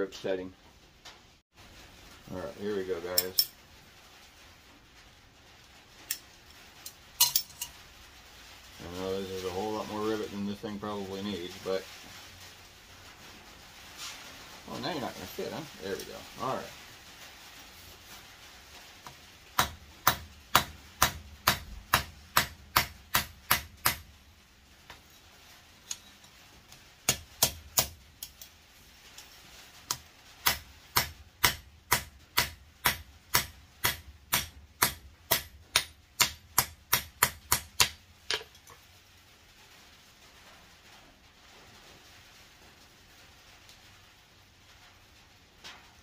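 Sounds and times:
hammer striking rivet on anvil: 19.6s - 24.1s, 30.5s - 38.5s.

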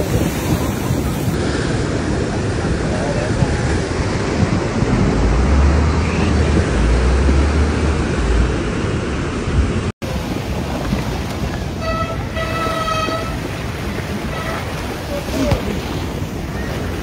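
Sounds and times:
low car rumble: 0.0s - 17.0s
water and wind rushing: 0.0s - 17.0s
car horn: 11.8s - 13.6s, 14.2s - 15.0s.

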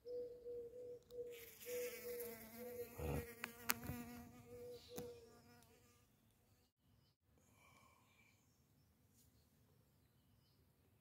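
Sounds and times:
bee buzzing: 1.3s - 6.0s.

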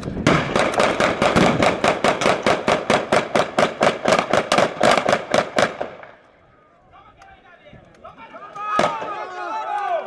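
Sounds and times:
machine gun firing: 0.2s - 6.1s.

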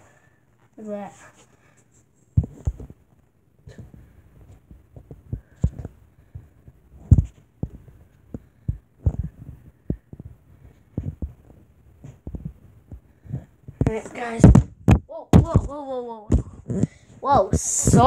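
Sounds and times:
glove thumps and scuffs: 7.0s - 10.3s.

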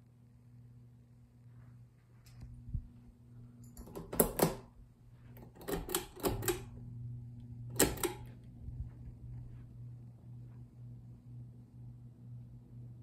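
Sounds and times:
ceiling fan motor hum: 0.0s - 13.0s
pull-chain switch clicking: 3.6s - 4.7s, 5.4s - 6.8s, 7.7s - 8.3s.

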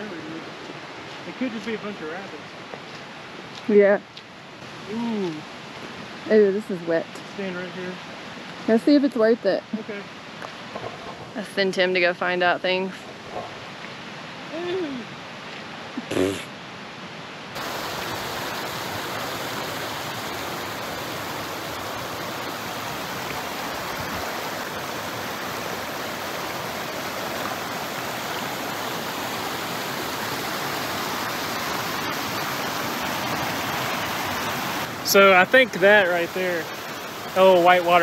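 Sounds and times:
creek rushing over rocks: 17.5s - 38.0s.

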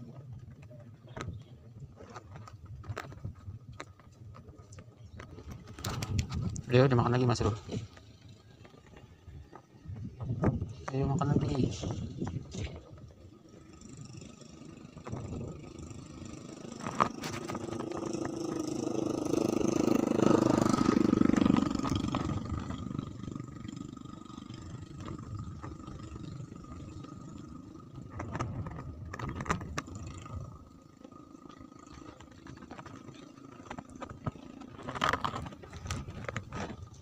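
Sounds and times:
engine passing by: 10.8s - 37.0s.

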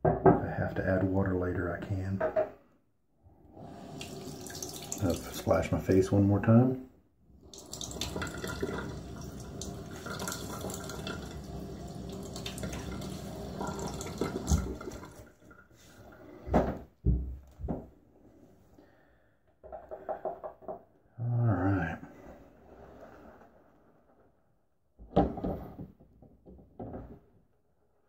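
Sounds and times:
running tap: 3.6s - 5.5s, 7.4s - 16.1s
water splashing at sink: 3.6s - 6.1s, 7.4s - 17.2s.

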